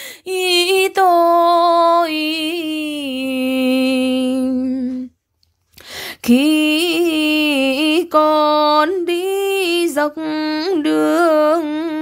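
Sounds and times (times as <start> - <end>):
woman breathing: 0.0 - 0.3, 5.7 - 6.3.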